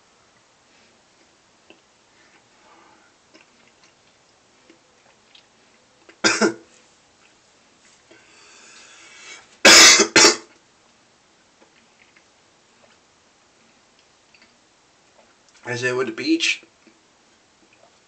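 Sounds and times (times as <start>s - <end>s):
man coughing: 6.2s - 6.6s, 9.7s - 10.5s.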